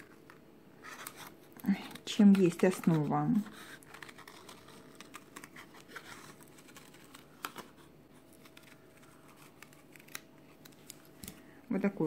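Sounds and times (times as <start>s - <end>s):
scissors cutting cardboard: 0.8s - 10.2s.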